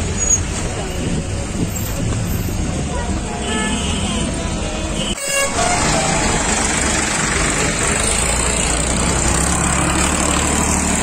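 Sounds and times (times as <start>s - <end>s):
tractor diesel engines droning: 4.3s - 11.0s.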